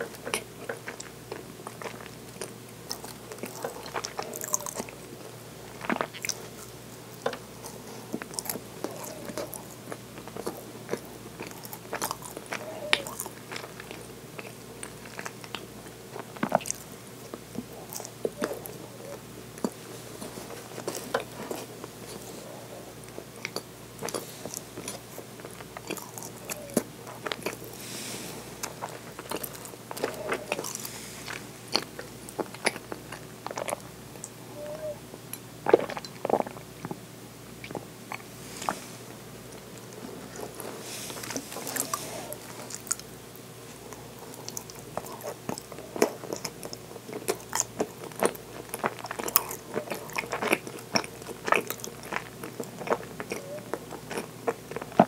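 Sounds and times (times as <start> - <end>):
chewing with wet mouth clicks: 0.0 - 22.3, 23.0 - 27.8, 28.6 - 34.4, 35.3 - 37.0, 37.6 - 38.8, 39.5 - 55.0
drink sipping: 27.6 - 32.1, 38.1 - 42.8
gulping: 28.8 - 30.8.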